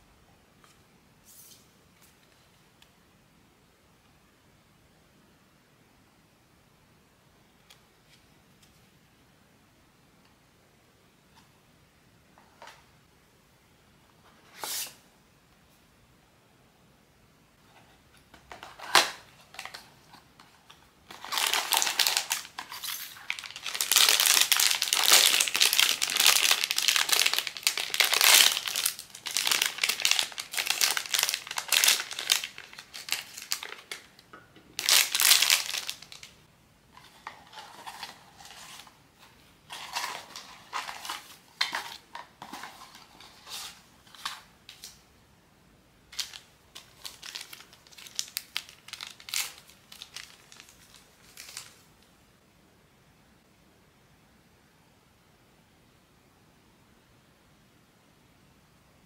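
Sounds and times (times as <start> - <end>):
packaging crinkling: 18.5 - 34.2, 34.8 - 36.4, 39.7 - 45.0, 46.1 - 51.9
packaging clicks: 21.1 - 34.1.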